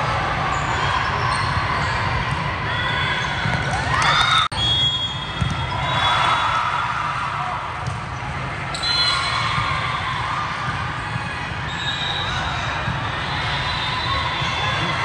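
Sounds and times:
chatter echoing in gym: 0.0s - 15.0s
sneaker squeaks on court floor: 0.5s - 2.1s.

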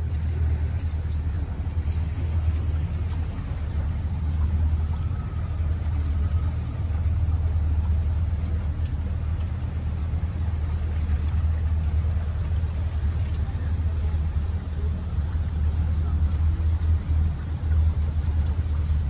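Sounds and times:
outboard motor idling: 0.0s - 19.0s.

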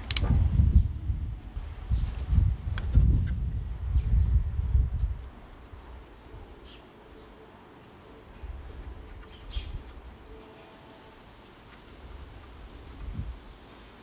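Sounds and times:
paintbrush scratching on plastic: 5.0s - 13.2s.

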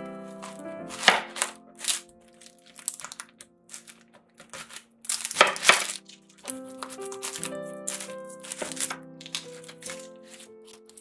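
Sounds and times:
background music: 0.0s - 11.0s
onion skin crackling: 0.4s - 11.0s
knife chopping onion on board: 0.9s - 1.5s.

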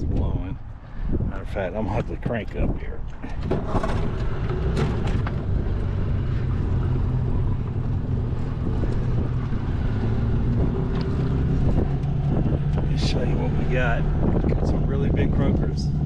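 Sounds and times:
outboard motor running: 3.3s - 16.0s.

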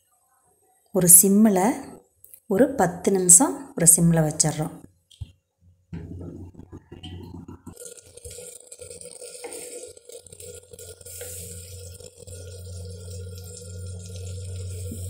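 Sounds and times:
low hum: 6.0s - 7.8s, 10.7s - 15.0s
food bubbling in pot: 6.0s - 15.0s.

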